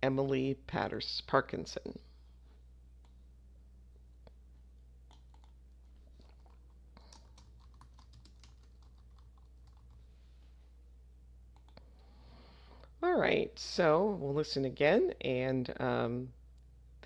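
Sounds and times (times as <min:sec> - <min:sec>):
electrical hum: 0:00.0 - 0:17.0
keyboard typing: 0:05.1 - 0:05.6, 0:06.2 - 0:10.0, 0:11.5 - 0:11.8.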